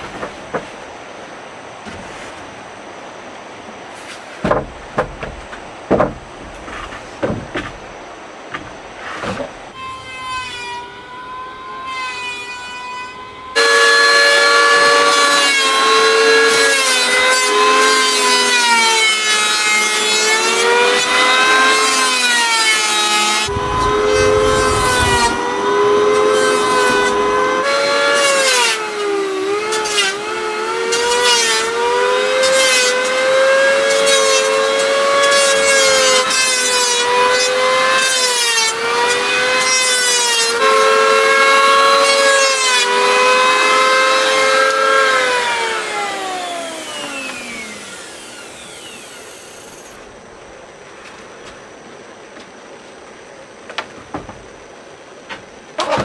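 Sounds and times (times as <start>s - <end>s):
electric planer shaving wood: 9.7s - 50.0s.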